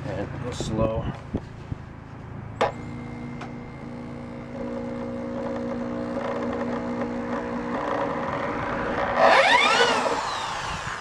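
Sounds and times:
electric drill whining: 2.7 - 11.0.

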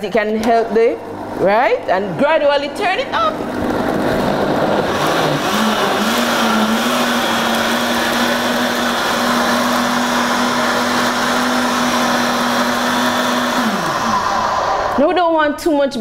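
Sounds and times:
blender motor running: 3.1 - 15.1.

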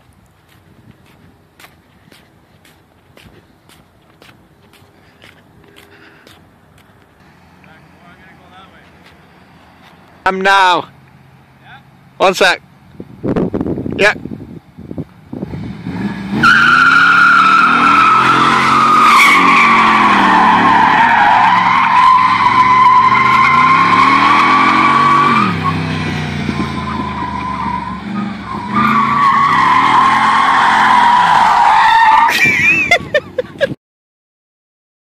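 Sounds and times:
car engine revving: 15.3 - 31.7
tyres squealing: 16.4 - 32.9.

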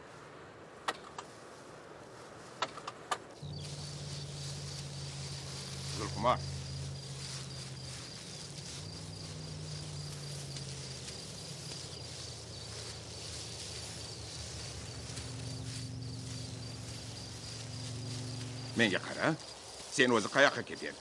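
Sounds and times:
open field background noise: 0.0 - 21.0
insects chirping: 2.2 - 21.0
low steady hum: 3.4 - 19.2.

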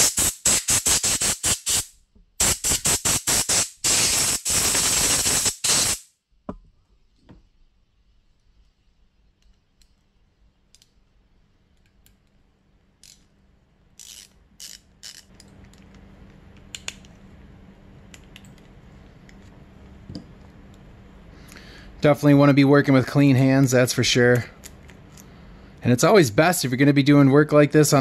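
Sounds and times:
low steady hum: 6.4 - 28.0
allen wrench metal clicks: 13.0 - 13.3, 14.0 - 15.9.

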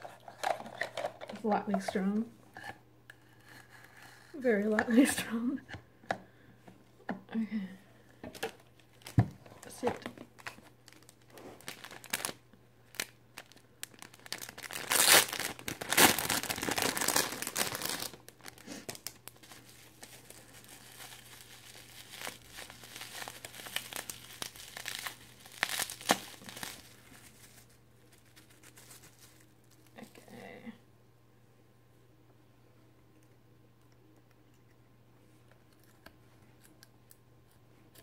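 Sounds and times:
plastic bag crinkling: 0.0 - 2.0, 8.3 - 30.4.

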